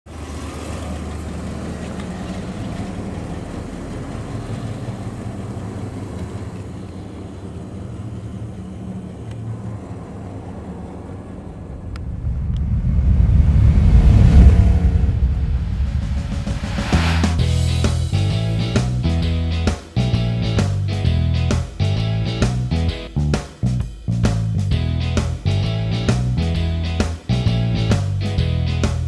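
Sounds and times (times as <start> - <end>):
car engine driving slowly past: 0.1 - 19.3
low rumble sound effect: 9.6 - 19.0.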